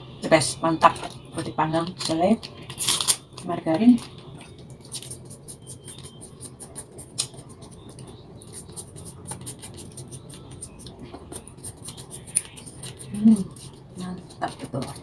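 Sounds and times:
packet crinkling: 2.0s - 3.4s
plastic knife scraping on toast: 4.0s - 15.0s.

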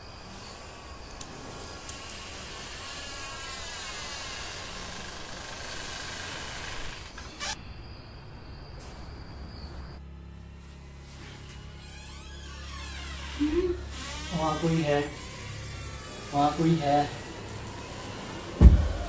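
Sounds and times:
door creaking open: 3.7s - 7.7s, 11.1s - 19.0s
door knock: 18.6s - 19.0s.

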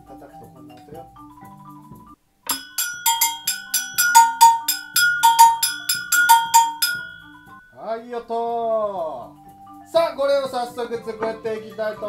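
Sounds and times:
agogo bell strikes: 2.5s - 7.8s.

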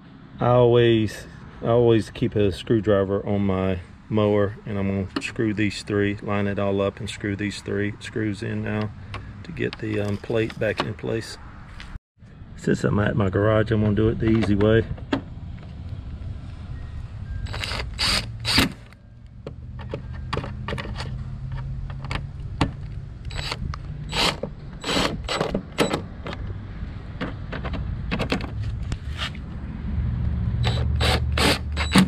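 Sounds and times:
power driver running screws: 17.5s - 18.9s, 23.3s - 25.5s, 30.6s - 32.0s.

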